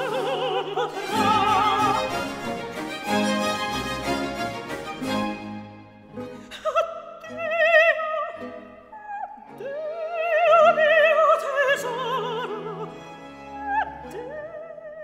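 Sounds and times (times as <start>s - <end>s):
operatic voice singing: 0.0s - 2.4s, 9.1s - 13.0s
orchestral accompaniment: 0.0s - 6.6s.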